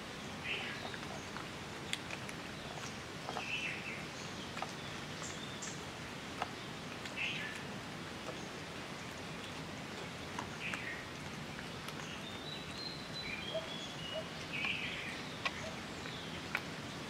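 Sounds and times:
steady background hiss: 0.0 - 17.0
kittens chewing wet clicks: 0.9 - 3.4.

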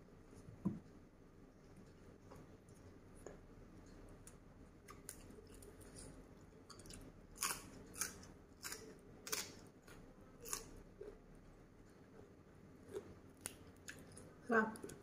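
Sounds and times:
person chewing with wet smacks: 1.8 - 11.2, 12.8 - 15.0.

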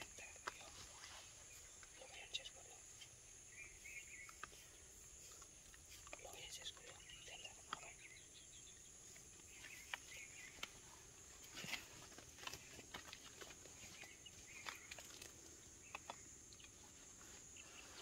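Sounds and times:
high insect drone: 0.0 - 18.0
parakeets cracking seeds: 11.5 - 16.8.

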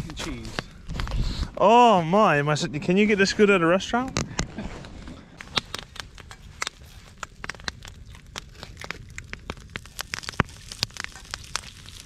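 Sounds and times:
campfire crackling and popping: 0.0 - 2.0, 5.4 - 12.0.

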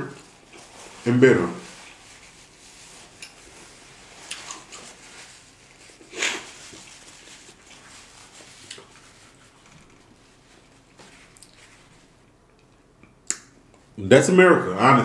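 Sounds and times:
napkin rustling: 0.1 - 12.2
man blowing his nose: 6.0 - 6.7.

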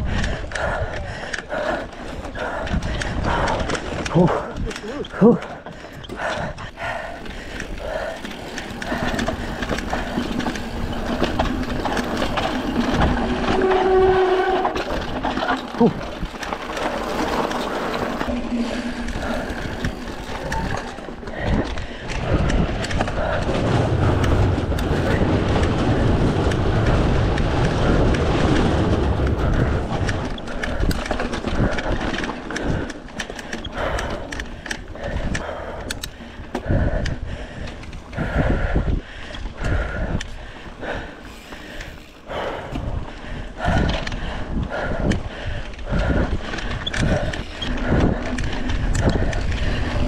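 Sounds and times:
bike rattling over bumps: 0.0 - 50.0
bike tyres rolling on dirt: 0.0 - 50.0
sharp rattles and knocks: 5.7 - 36.6
heavy low rumble: 6.1 - 31.9, 36.6 - 50.0
wind on microphone: 18.1 - 32.0, 35.0 - 50.0.

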